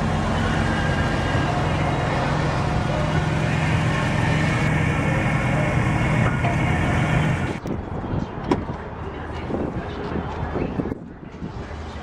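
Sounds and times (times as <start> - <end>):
vehicle engine running: 0.0 - 7.7.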